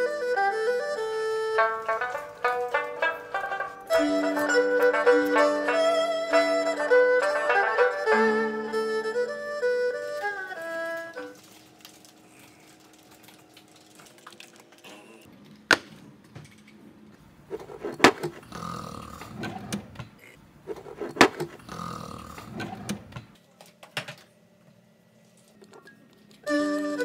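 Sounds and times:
rustling handling noise: 1.6s - 4.5s, 10.0s - 15.7s.

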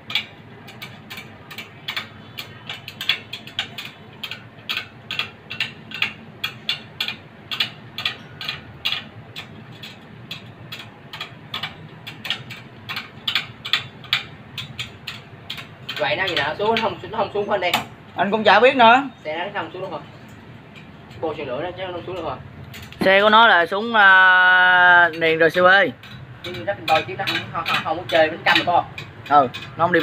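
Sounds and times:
spoke wrench clicking on spokes: 0.0s - 17.9s, 19.7s - 30.0s.

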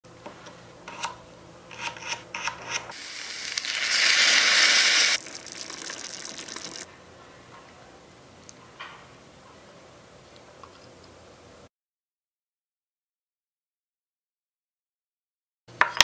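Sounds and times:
loud sizzling in saucepan: 2.9s - 6.9s
soft crackling sizzle: 2.9s - 7.0s.

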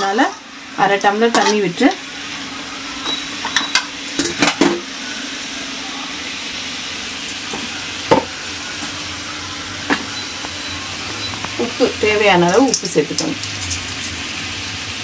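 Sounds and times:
vegetables sizzling in a pan: 0.0s - 15.0s.

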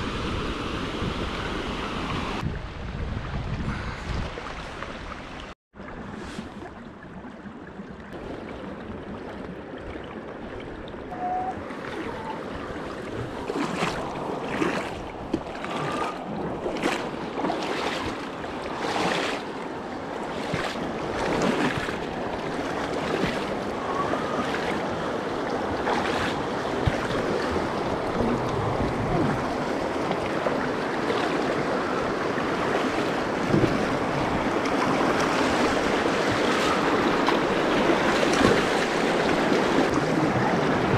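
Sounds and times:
water splashing: 3.8s - 19.6s, 20.2s - 40.9s
water rushing over river rapids: 20.1s - 40.9s.

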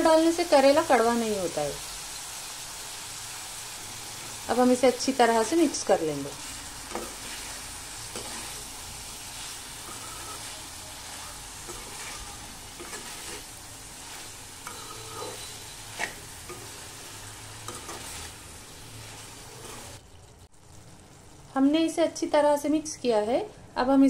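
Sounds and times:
food sizzling in a pan: 0.0s - 23.6s
spatula knocking and scraping pan: 6.4s - 8.7s, 11.6s - 13.5s, 14.1s - 16.9s, 17.7s - 18.3s.

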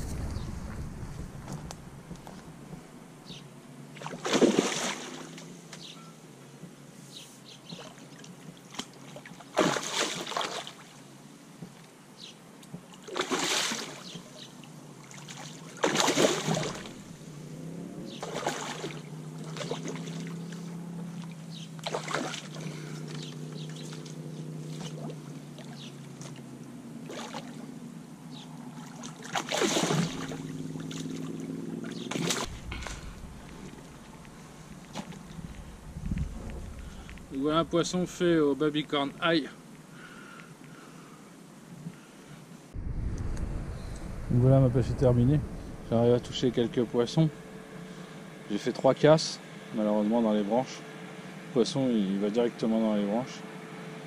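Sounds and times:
fish splashing in water: 3.9s - 5.6s, 7.8s - 11.0s, 12.9s - 17.2s, 18.2s - 27.7s, 28.6s - 37.7s
low steady drone: 16.6s - 18.2s, 30.0s - 40.0s, 42.6s - 54.0s.

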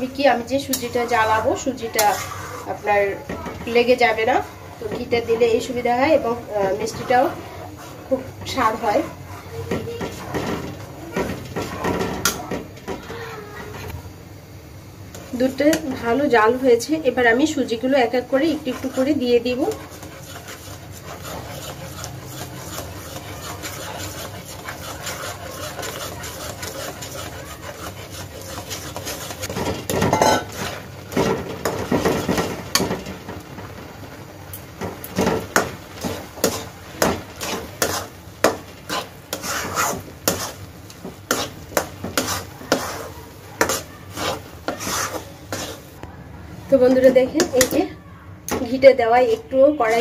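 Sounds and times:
spatula scraping pan: 0.0s - 14.0s, 15.1s - 46.0s, 48.5s - 50.0s
spatula stirring: 0.0s - 14.0s, 15.0s - 46.0s, 48.5s - 50.0s.

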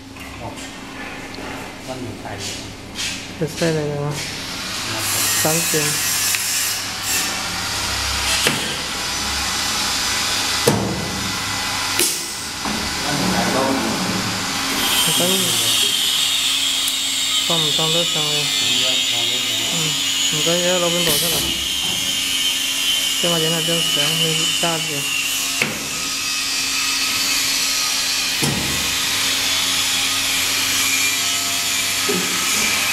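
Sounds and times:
rail grinding machine whirring: 4.4s - 32.9s
loud knock: 10.6s - 11.2s.

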